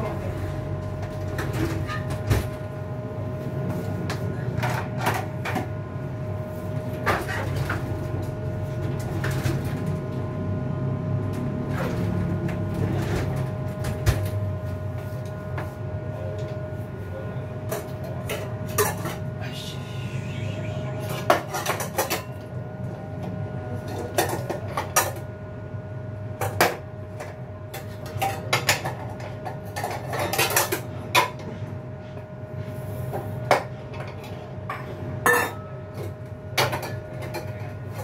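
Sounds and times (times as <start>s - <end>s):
steady hum: 14.5s - 27.1s.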